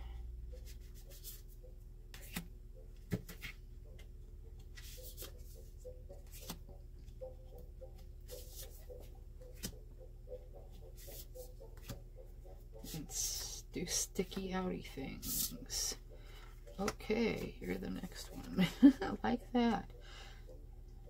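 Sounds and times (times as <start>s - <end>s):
steady low hum: 0.0s - 21.0s
light taps of cards: 6.2s - 7.2s.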